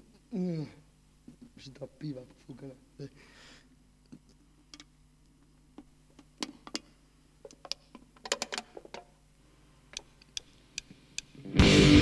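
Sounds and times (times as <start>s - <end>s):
sharp clicks and taps: 9.9s - 11.4s.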